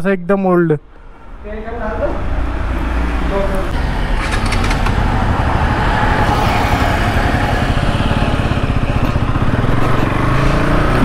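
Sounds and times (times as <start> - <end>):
road noise: 0.5 - 11.0
motorcycle engine running: 3.8 - 11.0.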